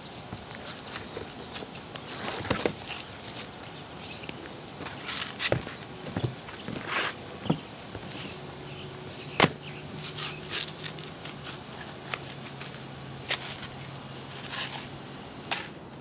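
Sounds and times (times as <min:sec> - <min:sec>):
knocks and scrapes of shingles: 0:00.3 - 0:03.7, 0:04.4 - 0:08.3, 0:09.4 - 0:16.0
footsteps on roof: 0:04.8 - 0:08.2.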